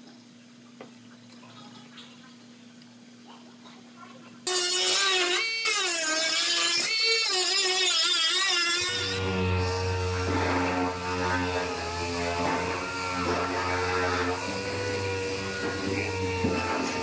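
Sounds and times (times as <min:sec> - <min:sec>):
air sander humming: 0:04.5 - 0:17.0
grinding hiss: 0:04.5 - 0:17.0
cut-off wheel whining: 0:06.7 - 0:17.0.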